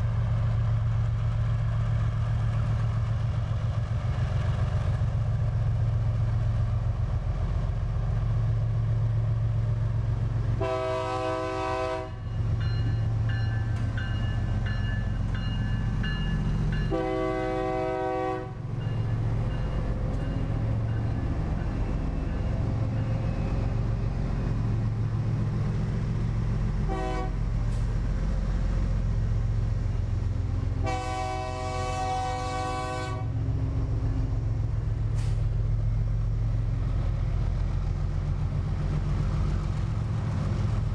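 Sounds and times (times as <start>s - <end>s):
locomotive engines humming: 0.0s - 40.9s
multi-tone air horn: 10.6s - 12.1s, 26.9s - 27.4s, 30.8s - 33.3s.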